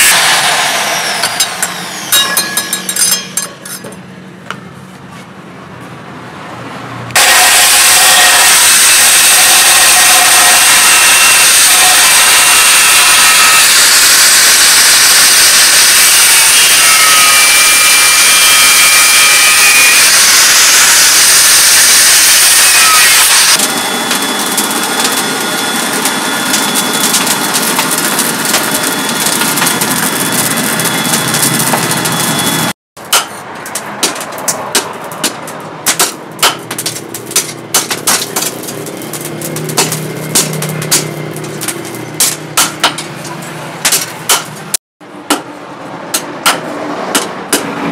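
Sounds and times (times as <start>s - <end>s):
air blower hum: 0.0s - 2.8s
angle grinder cutting metal: 0.0s - 3.8s, 7.1s - 34.5s, 35.8s - 44.8s
forge fire crackling: 23.6s - 32.7s, 33.6s - 42.3s.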